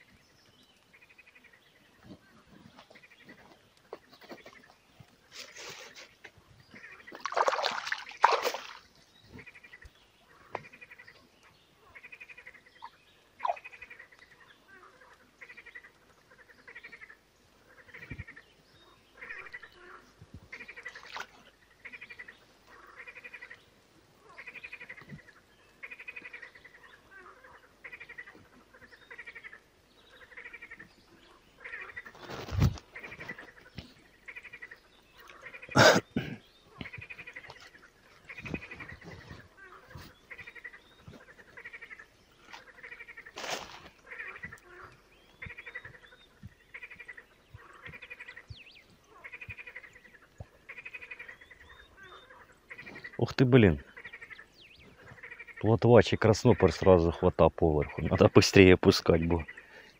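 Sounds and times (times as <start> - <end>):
keepnet splashing into water: 7.1 - 8.9
repeated animal call: 11.9 - 18.4, 31.5 - 59.9.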